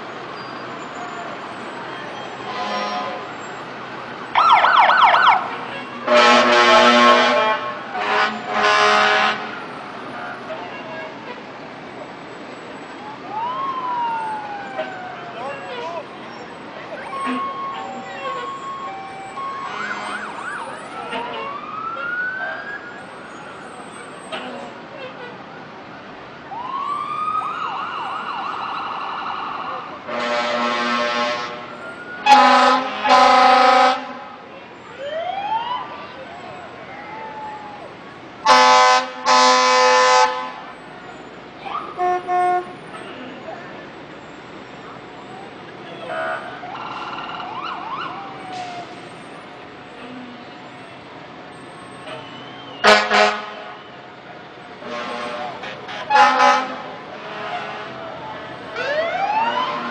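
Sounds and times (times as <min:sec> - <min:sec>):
fire truck siren wailing: 0:00.8 - 0:11.4, 0:12.1 - 0:24.8, 0:25.9 - 0:59.9
air horn blast: 0:02.5 - 0:03.2, 0:06.0 - 0:09.6, 0:30.1 - 0:31.7, 0:32.3 - 0:34.2, 0:38.5 - 0:40.7, 0:42.0 - 0:42.8, 0:52.8 - 0:53.8, 0:54.8 - 0:58.0
siren whooping: 0:04.3 - 0:05.6, 0:13.1 - 0:15.8, 0:17.0 - 0:23.8, 0:26.5 - 0:30.0, 0:35.0 - 0:37.9, 0:46.3 - 0:49.1, 0:58.2 - 0:59.9.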